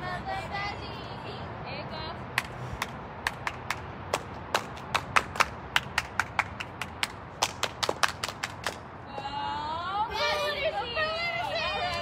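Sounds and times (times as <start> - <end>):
people clapping: 2.4 - 8.8.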